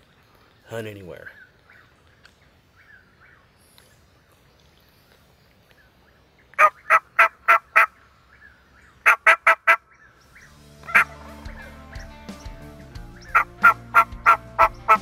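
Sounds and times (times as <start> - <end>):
turkey call yelping: 6.6 - 12.2, 13.1 - 15.0.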